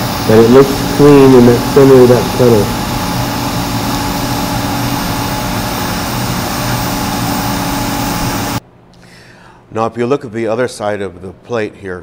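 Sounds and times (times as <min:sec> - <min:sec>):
welding arc hissing: 0:00.0 - 0:08.6
low electrical hum: 0:00.0 - 0:12.0.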